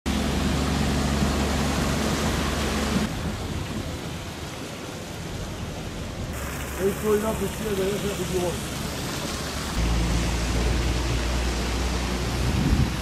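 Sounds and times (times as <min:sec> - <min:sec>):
engine running: 0:00.1 - 0:03.6, 0:06.4 - 0:13.0.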